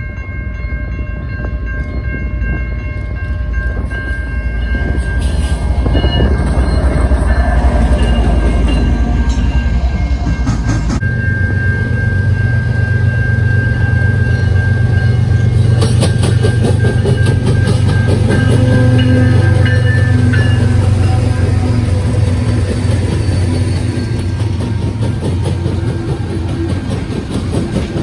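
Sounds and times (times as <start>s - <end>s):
diesel locomotive engines rumbling: 0.0s - 28.0s
train wheels clicking over rail joints: 15.4s - 28.0s.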